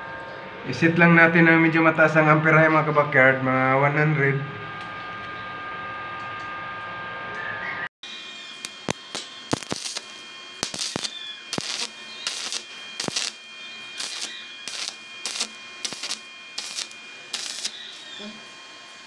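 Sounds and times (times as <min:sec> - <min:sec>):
arc welding crackling: 0:08.1 - 0:19.0.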